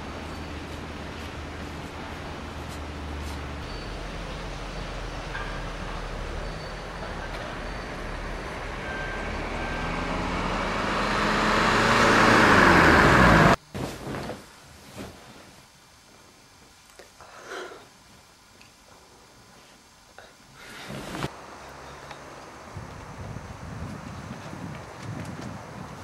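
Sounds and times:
car approaching: 3.4s - 13.6s.

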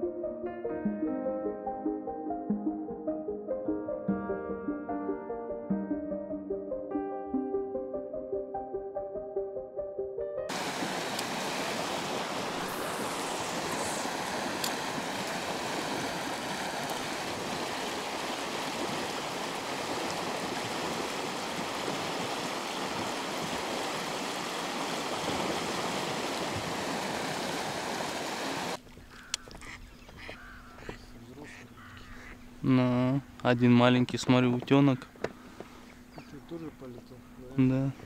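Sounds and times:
river water rushing: 10.5s - 28.8s
short bird calls: 29.0s - 32.5s.

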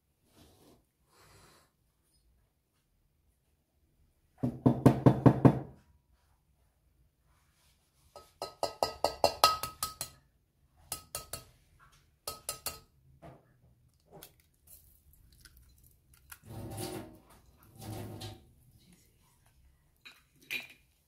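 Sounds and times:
egg tapping on metal pan: 8.2s - 10.2s, 10.9s - 11.5s, 12.2s - 12.9s
eggshell crackling: 13.9s - 16.5s.

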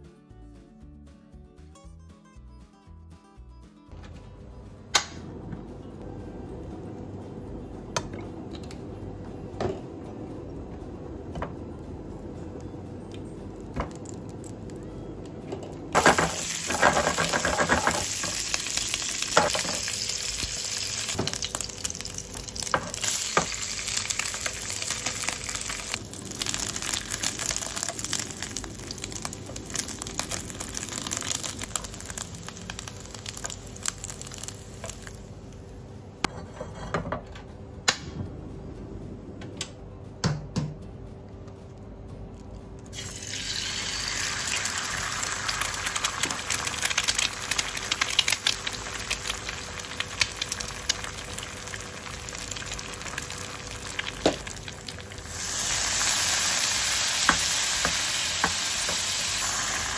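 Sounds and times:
sausages sizzling in oil: 15.9s - 35.5s, 43.0s - 59.9s.

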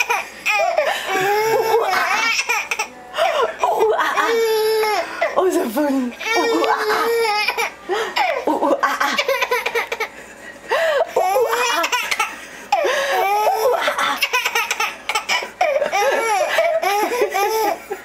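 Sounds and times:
baby laughing: 0.0s - 2.9s, 6.2s - 10.1s, 11.1s - 18.0s.

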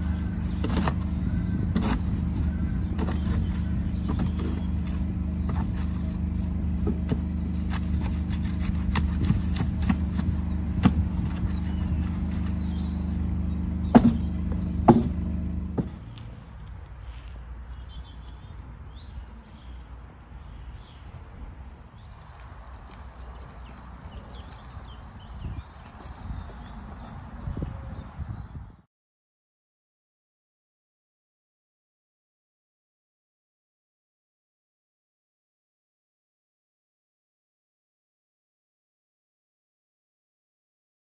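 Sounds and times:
shovel scraping mortar: 0.0s - 13.2s
low mechanical hum: 0.0s - 20.4s
bird chirps: 0.0s - 21.1s
knocks: 13.9s - 16.0s.

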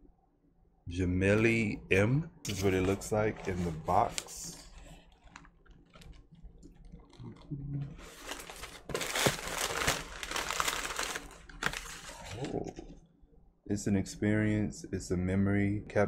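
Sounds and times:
tissue paper crinkling: 2.6s - 6.3s, 7.9s - 12.6s.

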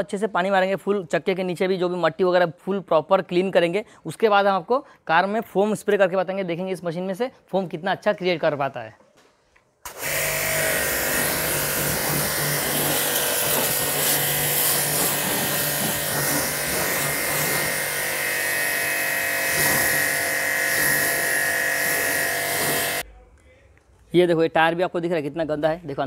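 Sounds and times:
pressure washer motor humming: 9.9s - 23.0s
water jet hissing: 9.9s - 23.0s.

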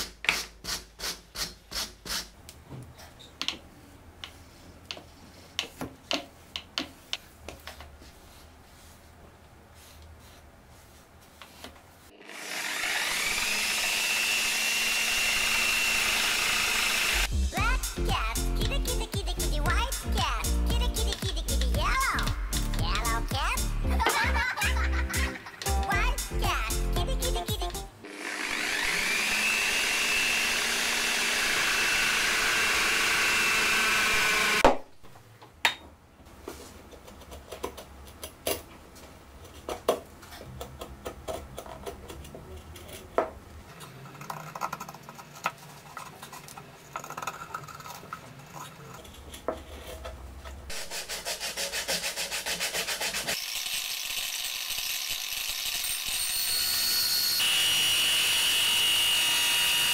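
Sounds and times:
angle grinder whine: 12.2s - 17.3s, 28.0s - 34.6s, 53.4s - 59.9s
grinder cutting disc buzzing on wood: 12.2s - 17.3s, 28.0s - 34.6s, 53.2s - 59.9s.

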